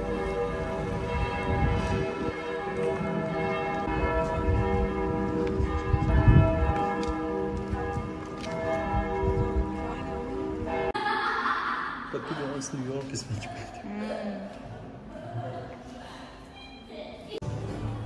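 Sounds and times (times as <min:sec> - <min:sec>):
bells ringing: 0:00.0 - 0:11.0.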